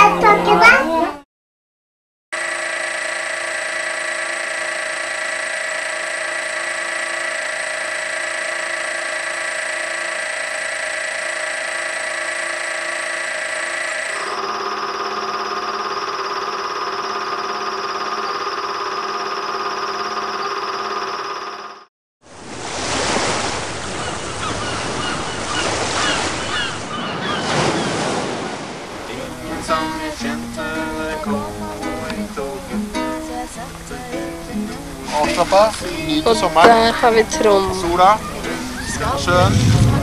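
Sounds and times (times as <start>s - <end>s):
sustained drone chord: 2.4s - 19.3s, 29.1s - 38.7s.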